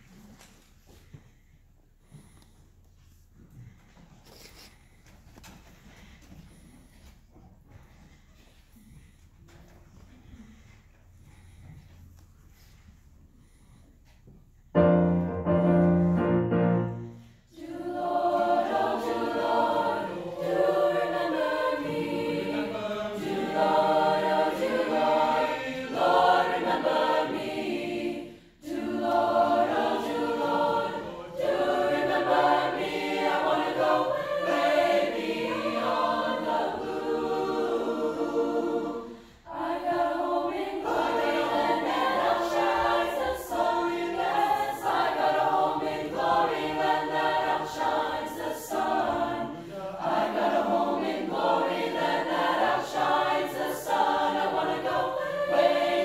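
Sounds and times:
choir singing: 14.8 - 56.0.

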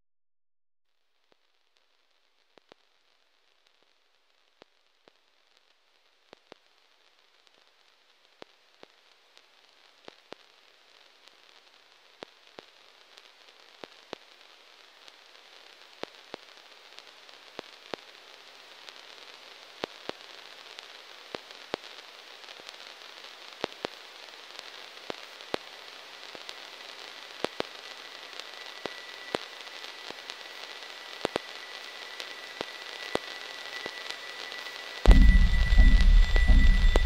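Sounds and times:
crackling static hiss: 0.9 - 37.0
faint high steady tone: 30.7 - 37.0
sharp clicks and pops: 35.0 - 37.0.

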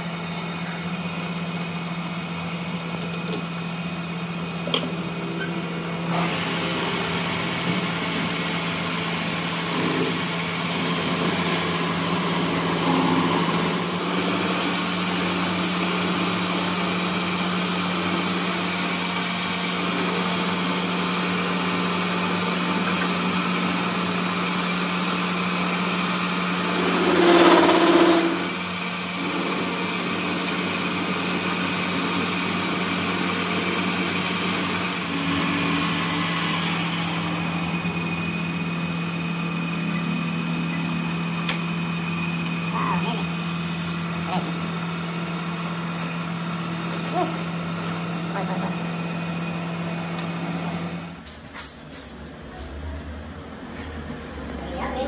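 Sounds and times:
metal lathe motor hum: 0.0 - 51.3
tool bit cutting metal: 9.6 - 17.0, 26.5 - 28.6.

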